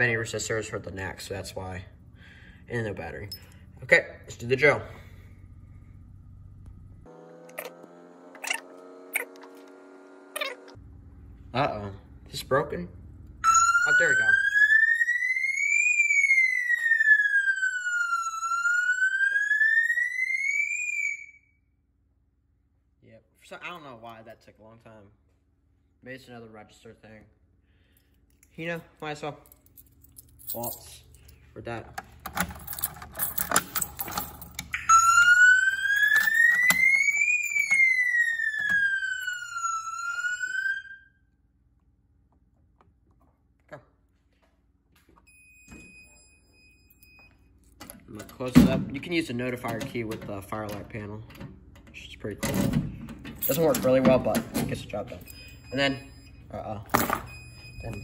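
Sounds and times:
fire alarm siren rising and falling: 7.0 - 10.9, 13.3 - 21.8, 33.2 - 41.6, 45.3 - 47.4, 55.1 - 58.0
keys rattling in a lock: 29.4 - 34.8, 35.9 - 37.9, 46.8 - 48.6, 49.6 - 55.7.

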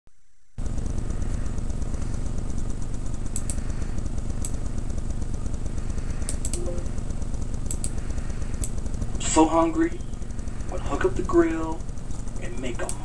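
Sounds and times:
steady low hum: 0.2 - 13.0
sharp light clicks: 3.3 - 3.6, 6.3 - 6.6, 7.6 - 8.0, 12.8 - 13.0.

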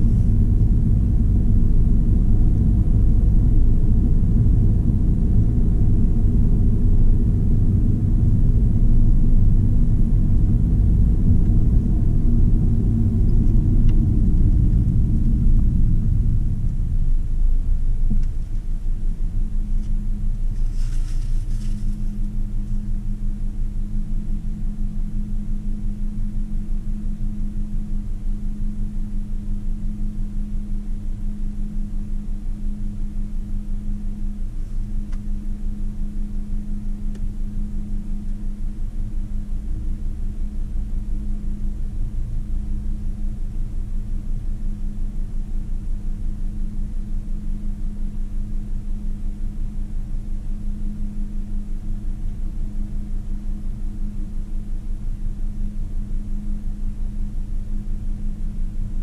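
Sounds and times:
car engine idling: 0.0 - 7.2.

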